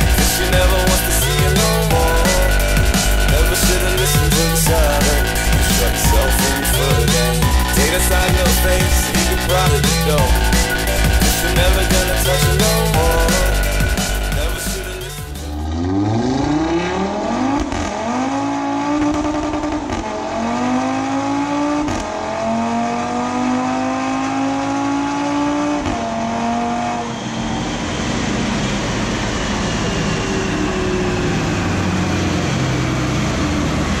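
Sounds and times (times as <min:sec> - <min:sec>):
rushing noise with falling whine: 0:00.0 - 0:18.1, 0:26.6 - 0:34.0
car engine revving hard: 0:00.0 - 0:34.0.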